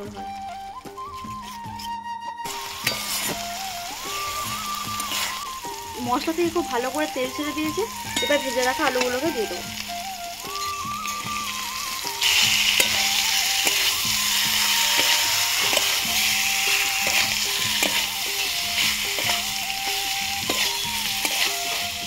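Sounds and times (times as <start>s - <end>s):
spatula scraping steel pan: 2.5s - 5.5s, 10.5s - 22.0s
potatoes sizzling in oil: 2.5s - 22.0s.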